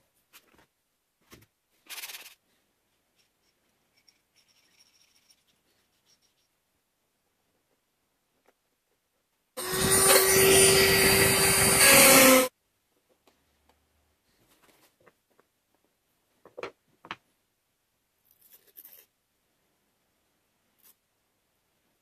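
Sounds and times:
power tool motor running: 9.6 - 12.5.

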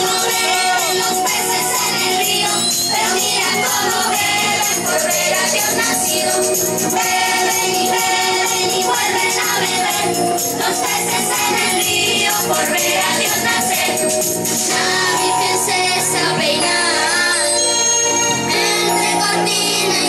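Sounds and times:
jingling tambourine: 0.0 - 15.4
voices singing together: 0.0 - 20.0.

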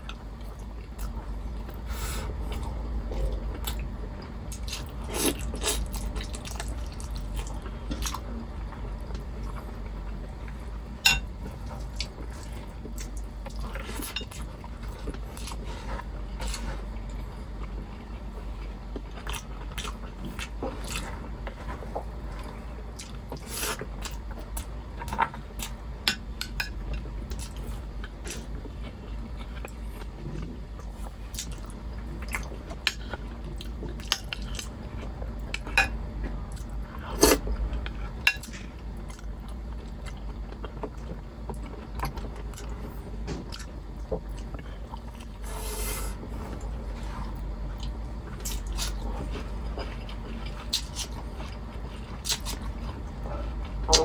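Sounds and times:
chewing: 11.4 - 25.7, 46.4 - 54.0.

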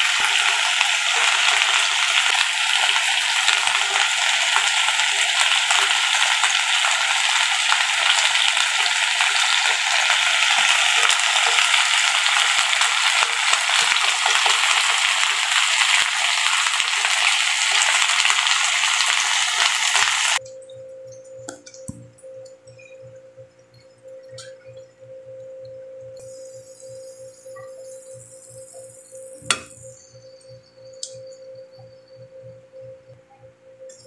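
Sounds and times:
meat sizzling in hot oil: 0.0 - 20.4
small crackles of frying: 0.0 - 20.4.

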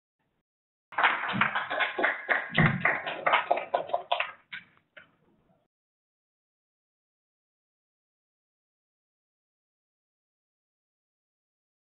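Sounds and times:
audience applause: 0.9 - 4.5.

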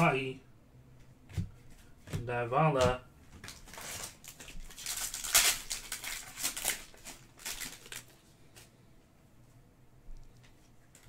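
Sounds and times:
foil wrappers crinkling: 3.4 - 8.7.

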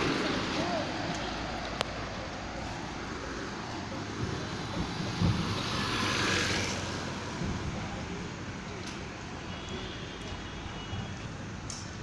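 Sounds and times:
road traffic rush: 0.0 - 12.0.

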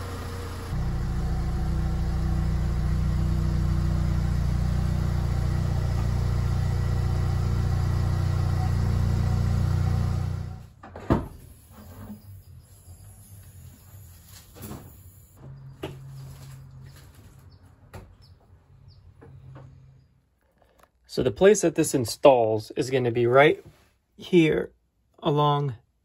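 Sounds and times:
truck engine droning: 0.0 - 10.7.

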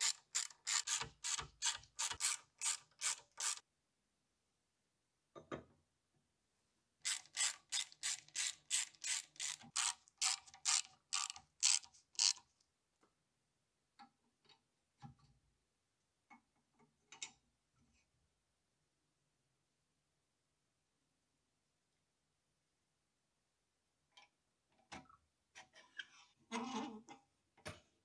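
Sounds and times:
ratchet wrench clicking: 7.1 - 12.4.

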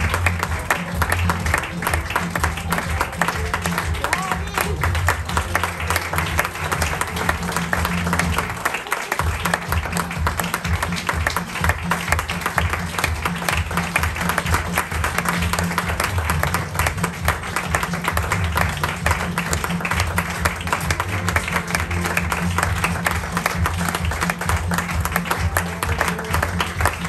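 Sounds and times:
music with prominent bass line: 0.0 - 8.6, 9.2 - 27.0
audience applauding: 0.0 - 27.0.

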